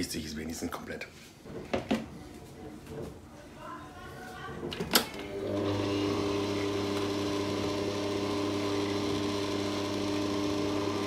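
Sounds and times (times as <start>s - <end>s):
stand mixer motor running: 5.4s - 11.0s.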